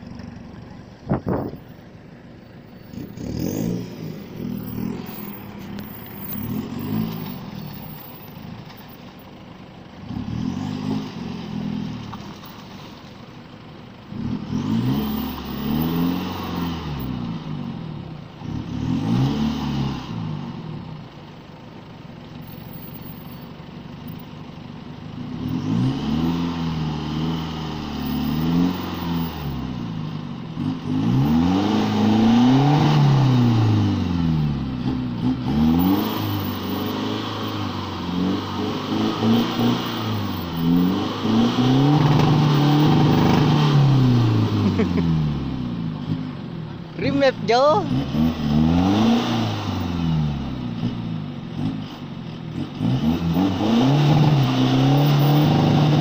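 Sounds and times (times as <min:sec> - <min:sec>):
truck engine revving: 0:02.7 - 0:13.0, 0:14.0 - 0:21.1, 0:25.0 - 0:56.0.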